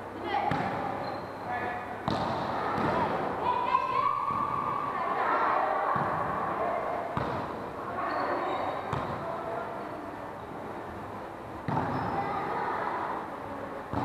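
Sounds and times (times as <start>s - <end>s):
murmur of voices in hall: 0.0s - 14.0s
volleyball being struck: 2.0s - 3.1s, 7.2s - 7.6s.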